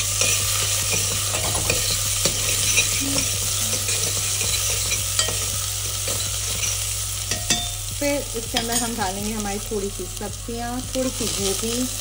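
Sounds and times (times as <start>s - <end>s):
onions sizzling: 0.0s - 12.0s
metal spoon clinking on pot: 0.2s - 7.8s.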